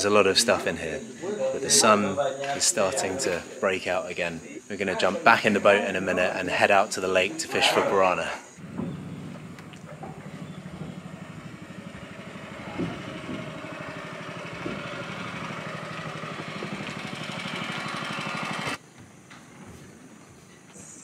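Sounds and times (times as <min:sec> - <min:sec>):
boat motor running: 0:08.6 - 0:18.8.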